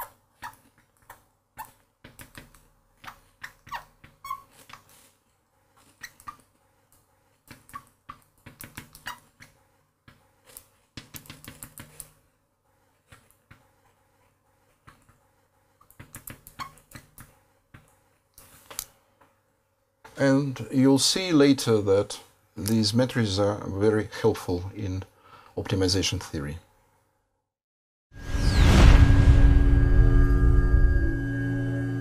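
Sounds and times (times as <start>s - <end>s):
marker pen squeaking on glass: 0.0s - 5.0s, 5.7s - 6.6s, 7.5s - 9.7s, 15.9s - 17.4s.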